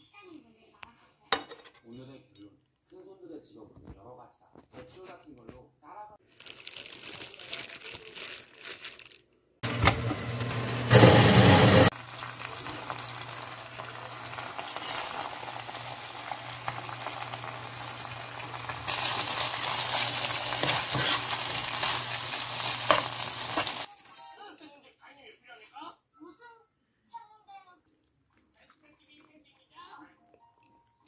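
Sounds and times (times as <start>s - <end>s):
food sizzling in a wok: 9.6s - 23.9s.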